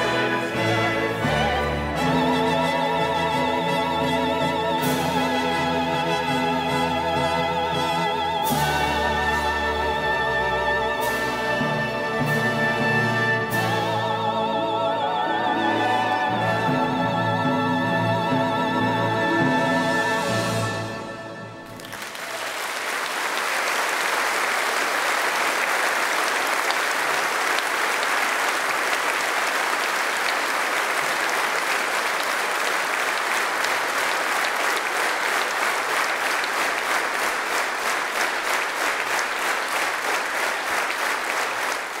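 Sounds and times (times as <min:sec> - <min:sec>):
music: 0:00.0 - 0:21.8
large audience applauding: 0:21.6 - 0:42.0.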